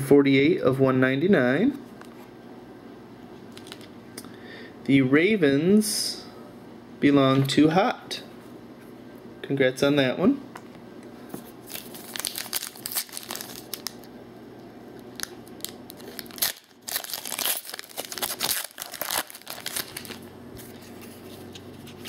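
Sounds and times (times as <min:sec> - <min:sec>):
foil wrapper crinkling: 0:11.6 - 0:14.1, 0:15.0 - 0:22.0.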